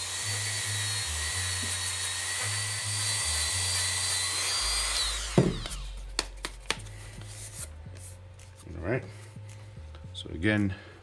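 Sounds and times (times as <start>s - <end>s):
rotary tool high whine: 0.0s - 6.0s
loud thump: 5.3s - 5.8s.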